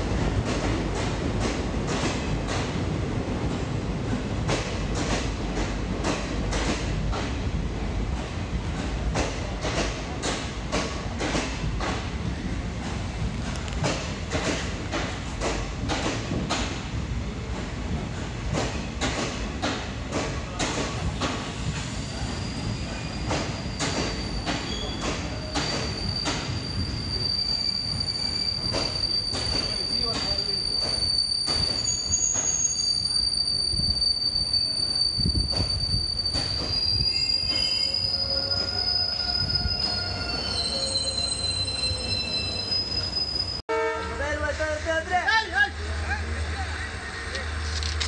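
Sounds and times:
train wheels squealing: 20.5s - 43.6s.

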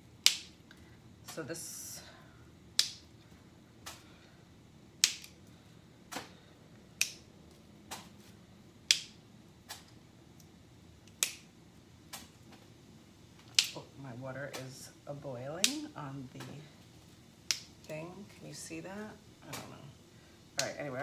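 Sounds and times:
asparagus spears snapping: 0.2s - 0.6s, 2.8s - 3.1s, 5.0s - 5.4s, 7.0s - 7.3s, 8.8s - 10.0s, 11.1s - 11.5s, 13.4s - 13.8s.

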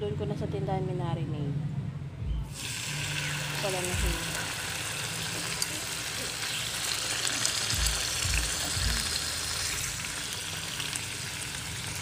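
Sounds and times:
meat sizzling in oil: 2.5s - 12.0s.

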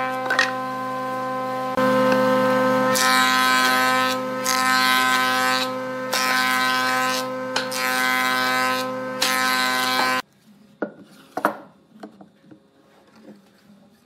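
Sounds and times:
thickness planer whining: 0.0s - 10.2s.

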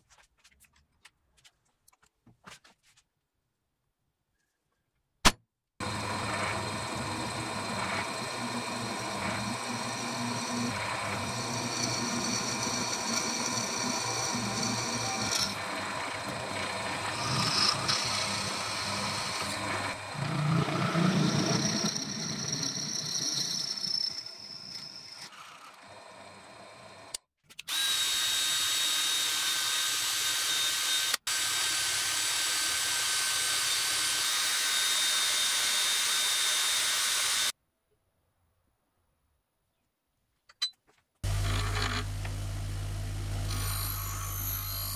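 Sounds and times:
drill press boring into wood: 5.8s - 26.0s, 27.7s - 37.5s, 41.2s - 42.4s
cordless drill spinning disc: 5.8s - 37.6s, 41.2s - 44.9s.

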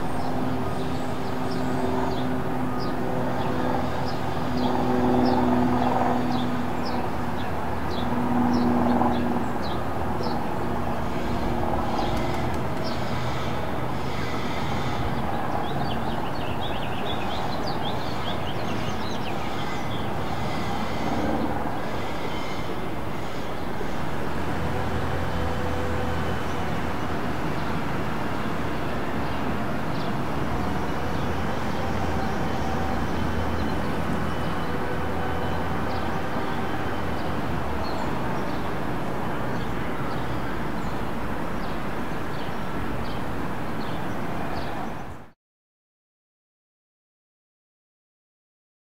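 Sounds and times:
city street traffic: 6.2s - 45.3s
heavy vehicle hum: 18.7s - 40.7s.

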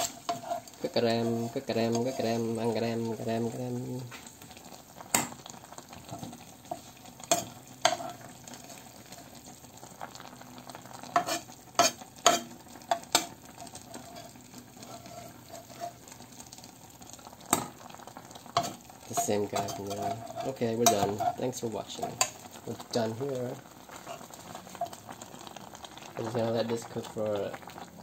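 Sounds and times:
metal spatula scraping frying pan: 0.0s - 3.4s, 6.1s - 9.4s, 11.1s - 16.2s, 18.5s - 22.5s, 23.9s - 25.0s
faint sizzle: 0.0s - 28.0s.

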